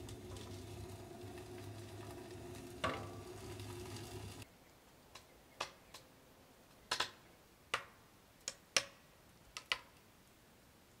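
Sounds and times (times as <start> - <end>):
firewood crackling and popping: 0.0 - 4.4.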